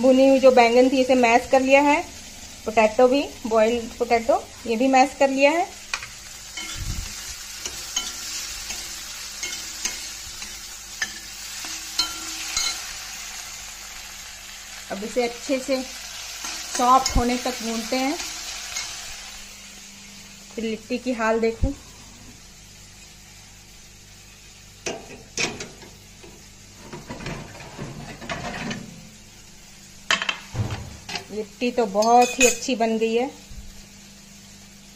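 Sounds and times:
masala sizzling in a pan: 0:00.0 - 0:34.9
steel spatula clinking and scraping: 0:06.6 - 0:06.9, 0:07.6 - 0:13.0, 0:18.7 - 0:19.0, 0:32.0 - 0:32.7
metal tray clanks: 0:24.9 - 0:29.0
tray rattling and scraping on rack: 0:26.8 - 0:28.9.

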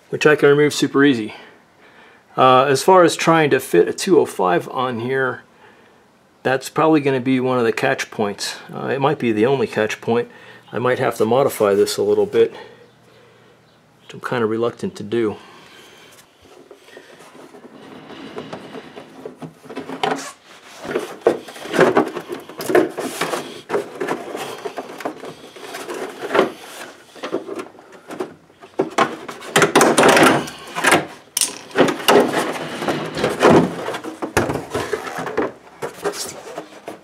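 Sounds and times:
fender liner scraping and knocking: 0:16.5 - 0:31.2, 0:31.8 - 0:37.0.

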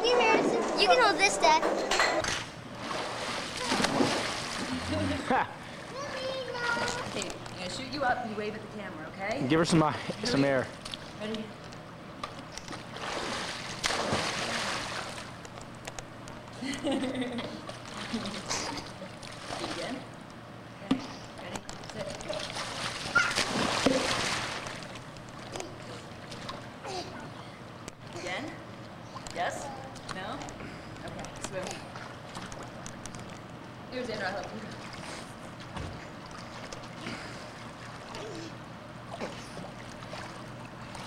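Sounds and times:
pool water splashing: 0:02.6 - 0:08.5, 0:09.7 - 0:15.8, 0:17.5 - 0:20.3, 0:22.0 - 0:27.7, 0:31.5 - 0:33.3, 0:34.0 - 0:41.0
big splash with spray: 0:13.0 - 0:15.0.

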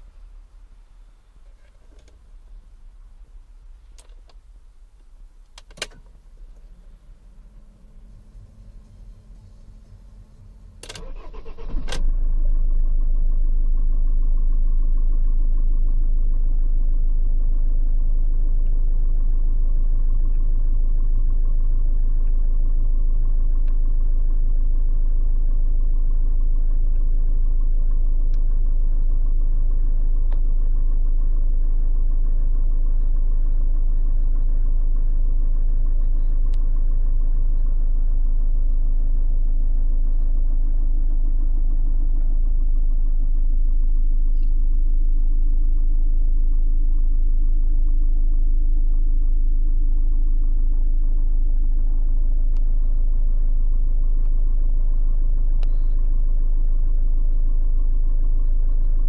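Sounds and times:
diesel engine cranking and idling: 0:05.1 - 0:13.3.

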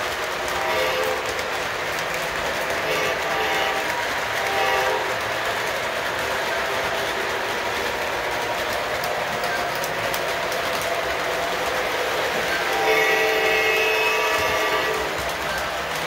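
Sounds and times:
model train wheels clattering on rail: 0:00.0 - 0:16.0.

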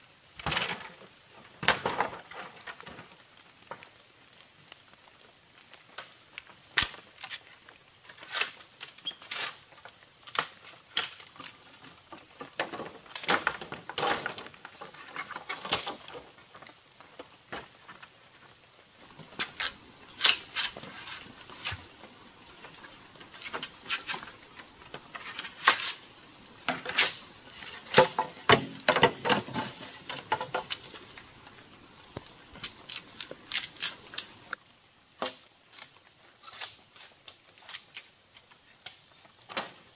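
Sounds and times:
scraping: 0:19.0 - 0:34.6.

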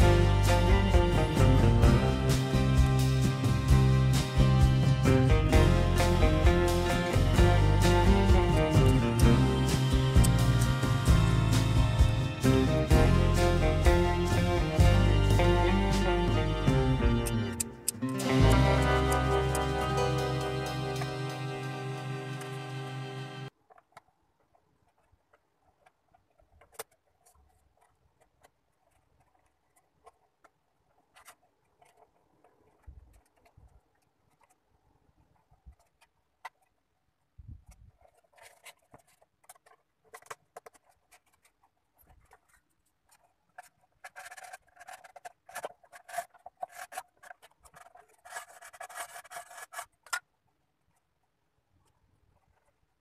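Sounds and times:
rubbing and scraping on wood: 0:37.7 - 0:50.3.

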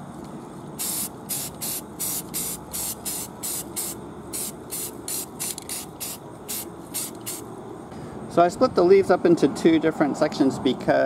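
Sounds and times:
spray paint bursts hissing: 0:00.8 - 0:07.5.

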